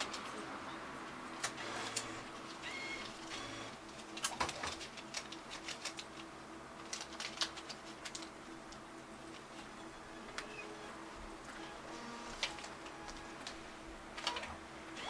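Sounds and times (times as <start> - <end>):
banknotes clicking and rustling: 1.4 - 10.6.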